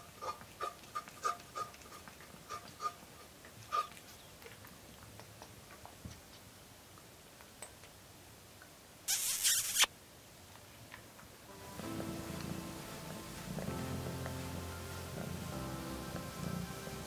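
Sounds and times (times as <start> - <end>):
woman blowing hissing puff: 9.1 - 9.9.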